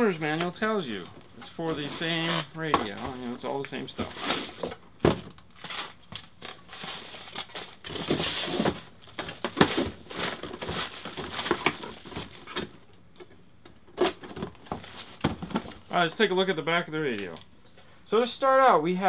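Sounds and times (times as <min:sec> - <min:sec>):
plastic bag crinkling: 0:05.5 - 0:12.5.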